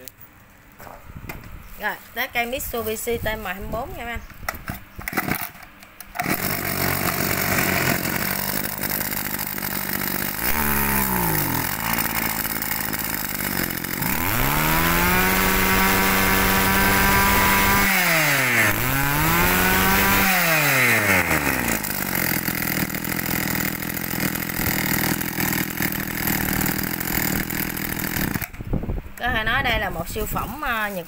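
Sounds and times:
brush cutter engine revving: 5.0 - 28.7.

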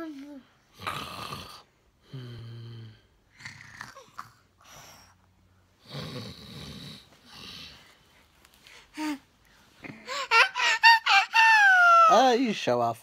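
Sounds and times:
man snoring: 0.8 - 3.7, 5.8 - 7.7.

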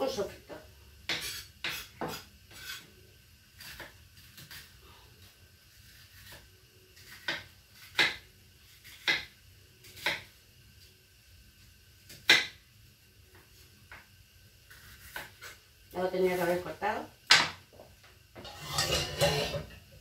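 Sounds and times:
kitchen utensils knocking: 18.4 - 19.9.

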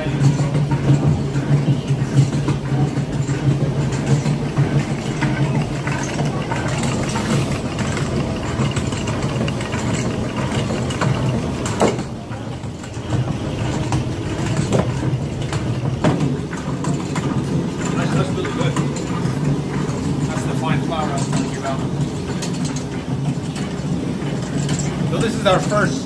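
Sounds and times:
stone mill grinding: 0.0 - 26.0.

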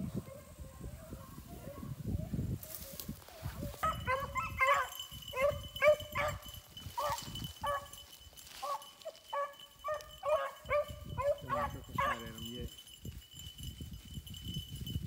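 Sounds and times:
dogs yelping barks: 3.7 - 8.0, 8.6 - 12.4
deeper-voiced dog barking: 3.8 - 6.4, 8.6 - 12.4.

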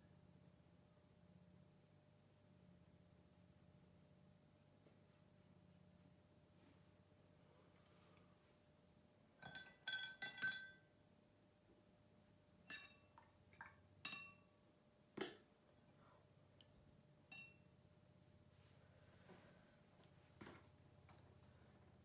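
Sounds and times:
paintbrush clinking against glass jar: 9.4 - 10.9, 12.7 - 14.5, 17.3 - 17.7.

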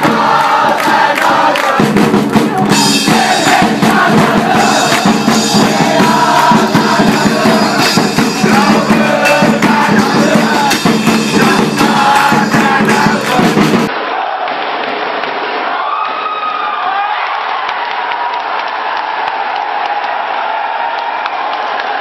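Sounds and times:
bass drums beating: 0.0 - 13.9
crowd chanting: 0.0 - 16.0.

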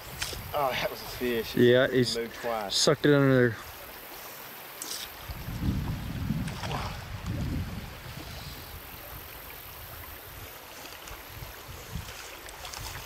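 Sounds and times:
wind buffeting microphone: 0.0 - 1.6, 5.2 - 13.0
flowing stream water: 0.0 - 13.0.

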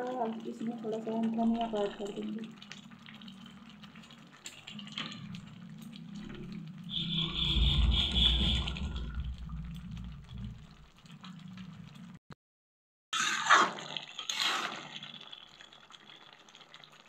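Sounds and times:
spatula stirring bubbling curry: 0.2 - 7.6, 13.2 - 17.0.

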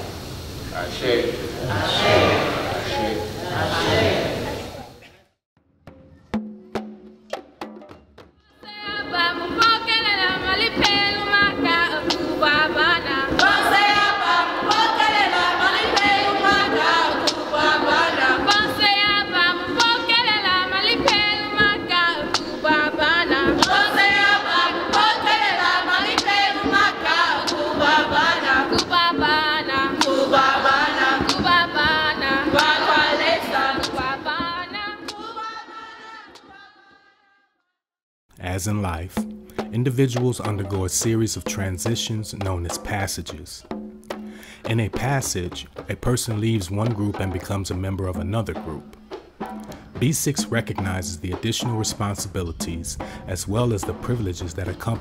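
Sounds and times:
women singing together: 1.7 - 4.8, 8.6 - 37.4
sharp rhythmic strikes: 5.7 - 35.6, 38.5 - 55.0.

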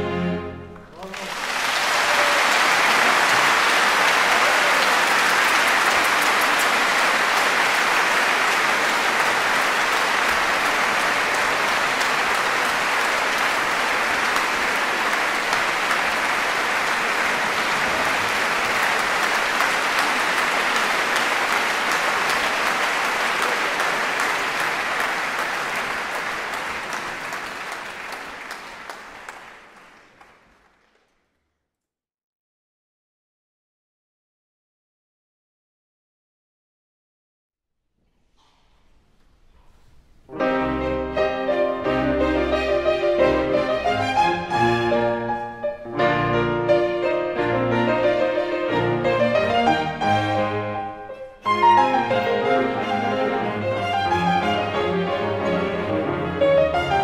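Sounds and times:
audience applauding: 0.7 - 31.4, 46.8 - 57.0.

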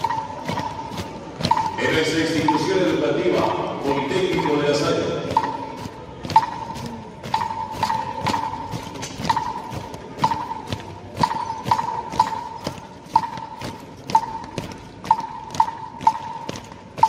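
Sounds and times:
percussion clicks with ringing tone: 6.3 - 16.7.

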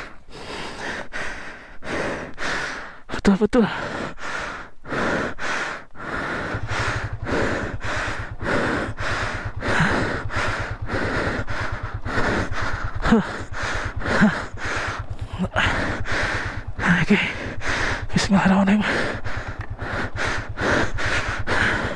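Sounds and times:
person gasping: 0.0 - 18.1, 18.7 - 21.9
person breathing hard: 0.0 - 21.9
motorcycle engine running low: 3.4 - 21.9.

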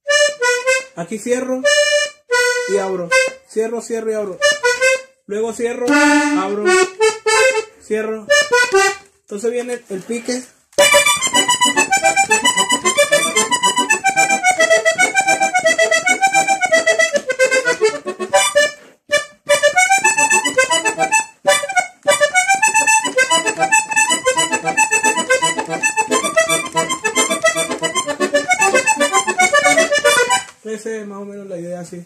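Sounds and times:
button accordion playing: 0.0 - 3.5, 4.2 - 9.2, 10.2 - 30.6.

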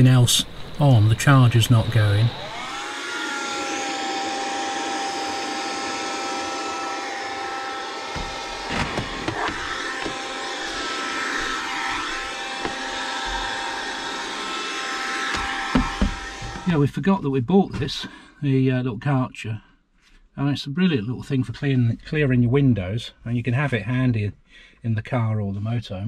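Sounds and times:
window vacuum motor whine: 2.0 - 16.8.

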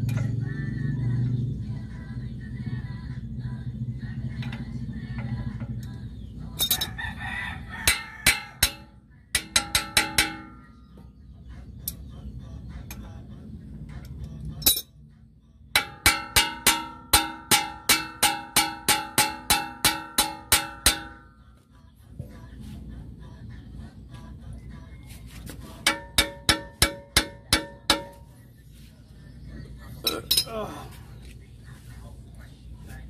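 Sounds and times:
wrench clinking on metal: 6.6 - 7.0, 14.5 - 15.0, 30.0 - 30.6.

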